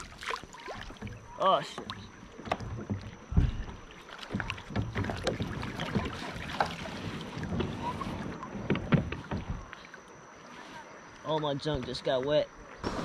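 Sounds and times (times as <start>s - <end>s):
knocks and clunks of boat gear: 0.0s - 10.2s
water splashing against kayak hull: 0.0s - 13.0s.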